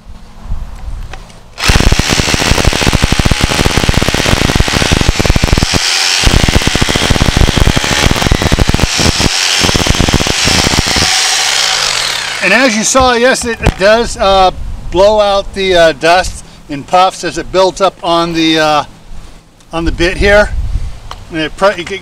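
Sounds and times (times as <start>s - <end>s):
rotary hammer drilling concrete: 1.6s - 12.8s.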